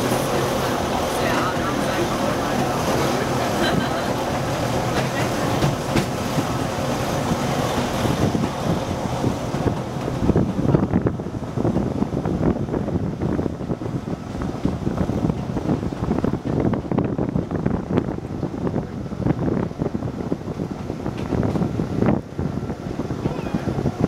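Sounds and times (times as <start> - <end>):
train passing hiss: 0.0 - 9.6
electric train running: 0.0 - 24.0
wind buffeting microphone: 0.0 - 24.0.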